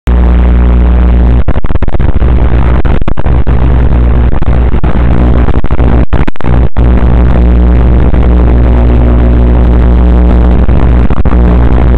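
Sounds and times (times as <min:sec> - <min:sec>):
loud harsh static: 0:00.0 - 0:11.9
low electrical buzz: 0:00.1 - 0:11.9.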